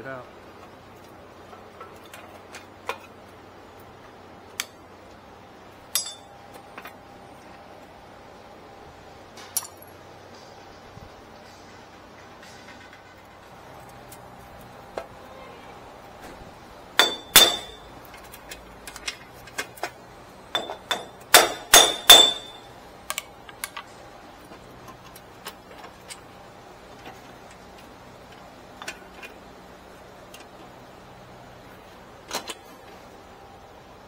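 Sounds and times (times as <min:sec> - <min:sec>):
steel tool clanking on metal hub: 0:05.9 - 0:07.0, 0:17.0 - 0:22.8.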